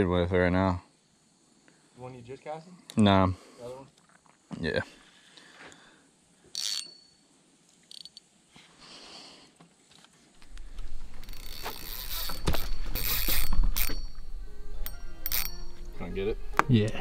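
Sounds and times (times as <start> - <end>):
fishing gear clicking and rattling: 7.8 - 8.3, 10.4 - 16.0.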